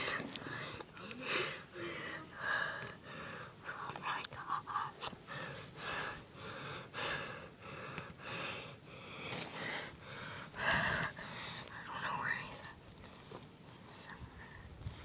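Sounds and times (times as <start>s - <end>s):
person breathing heavily: 0.0s - 3.7s, 5.2s - 11.7s.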